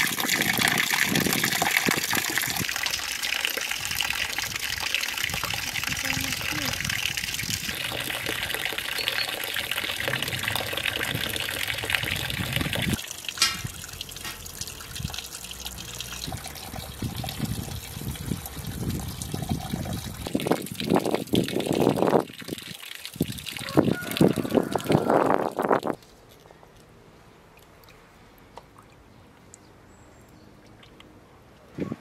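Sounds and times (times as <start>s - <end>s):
water splashing into trough: 0.0s - 25.2s.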